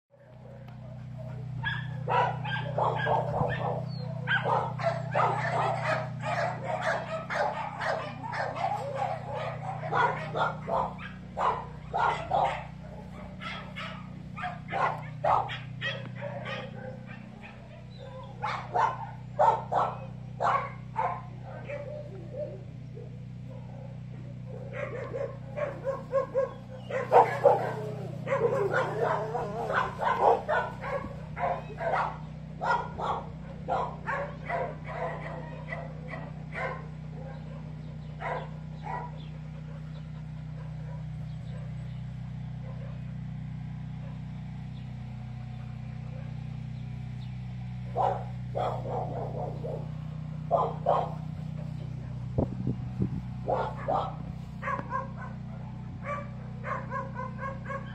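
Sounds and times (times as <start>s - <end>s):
steady low hum: 0.1s - 57.9s
small dog barking and yipping: 0.5s - 22.6s, 23.5s - 40.0s, 47.9s - 49.9s, 50.5s - 52.2s, 53.4s - 57.9s
dog whining and yipping: 1.6s - 11.2s, 24.8s - 32.0s.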